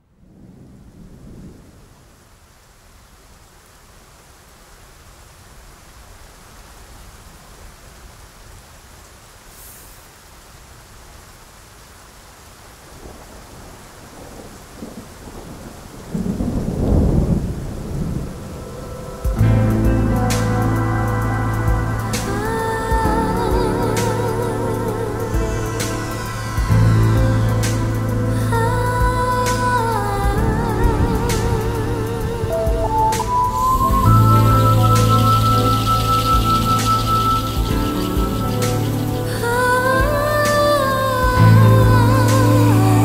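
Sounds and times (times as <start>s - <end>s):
thunder rumbling: 0.0s - 2.4s, 13.0s - 43.0s
steady rain falling: 0.0s - 43.0s.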